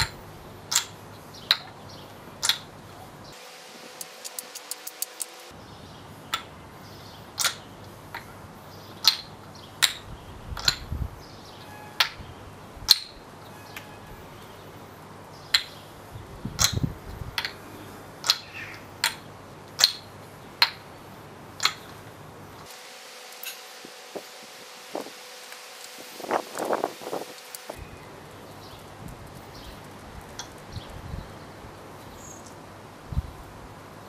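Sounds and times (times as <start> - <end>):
wooden ball clacking on cups: 0.0 - 1.8, 2.4 - 2.7, 3.9 - 5.5, 6.3 - 6.5, 7.4 - 8.3, 9.0 - 10.9, 12.9 - 13.2, 16.6 - 17.6, 18.2 - 20.9, 21.6 - 22.0.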